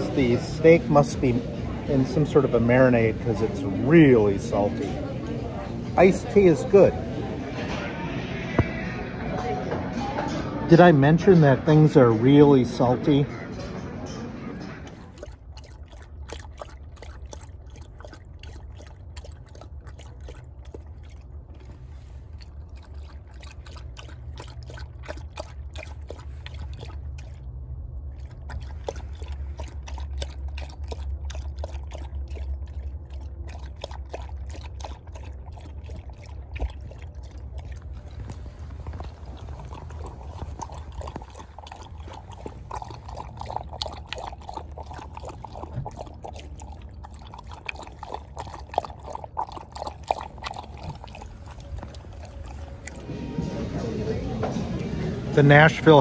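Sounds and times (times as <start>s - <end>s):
dog lapping water: 14.8s - 53.4s.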